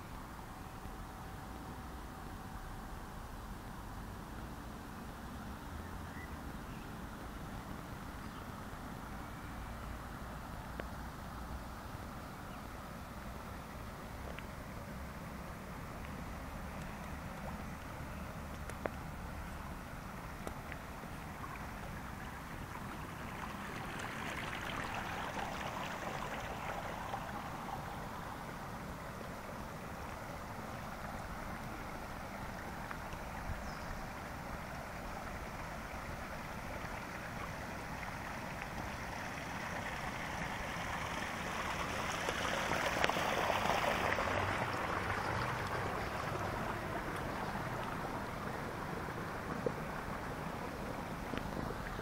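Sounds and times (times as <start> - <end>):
water rushing down a channel: 12.9 - 52.0.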